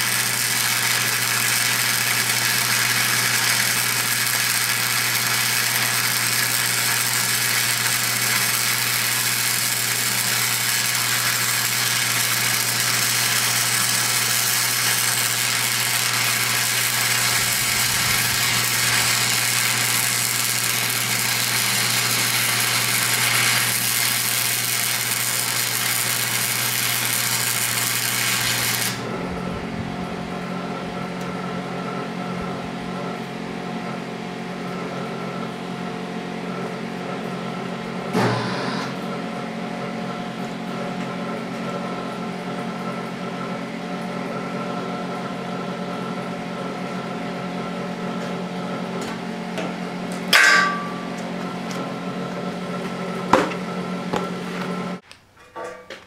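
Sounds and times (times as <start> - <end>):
welding arc crackling: 0.0 - 29.2
steady hum: 0.0 - 33.6.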